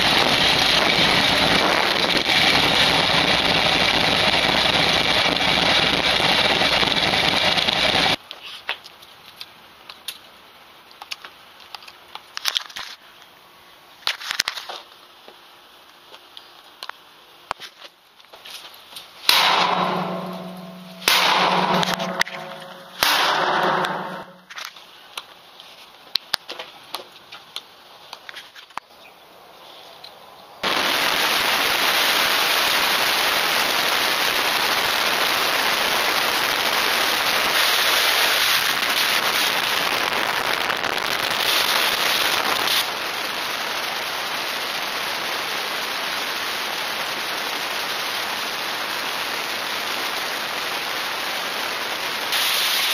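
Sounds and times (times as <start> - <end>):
loud bursts: 0.0 - 8.2, 19.3 - 24.5, 30.6 - 35.1.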